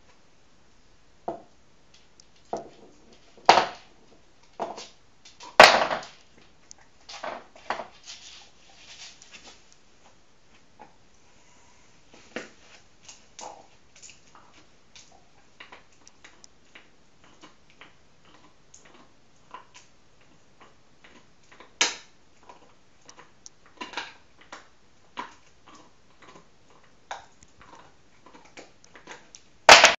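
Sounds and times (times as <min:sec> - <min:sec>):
dog gnawing bone: 0:13.0 - 0:29.8.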